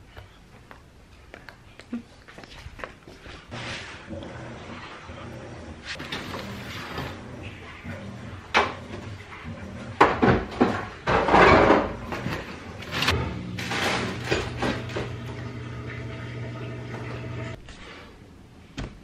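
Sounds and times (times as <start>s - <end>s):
boxes knocking and clattering: 10.0s - 15.2s.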